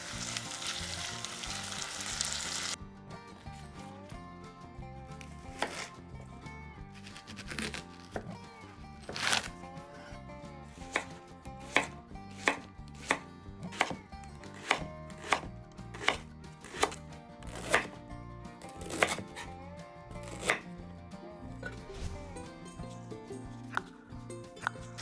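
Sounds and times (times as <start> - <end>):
soft background music: 0.0 - 25.0
knife chopping on cutting board: 5.5 - 5.9, 7.0 - 8.4, 10.8 - 18.0, 18.7 - 19.5, 20.3 - 20.6.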